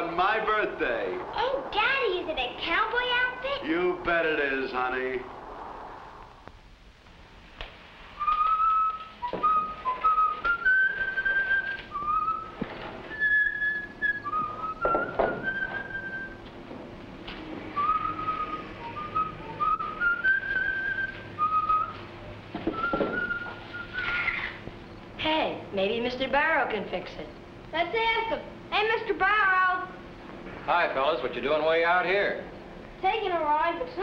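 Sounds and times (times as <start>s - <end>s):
man whistling a tune: 8.2s - 16.4s, 17.8s - 22.0s, 22.7s - 24.2s.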